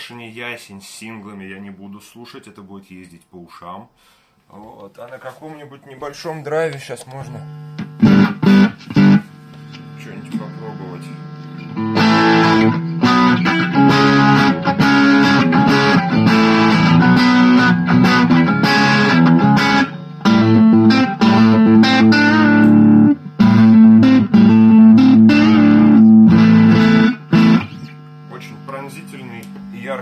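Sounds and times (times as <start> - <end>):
overdriven electric guitar: 7.5 - 28.3.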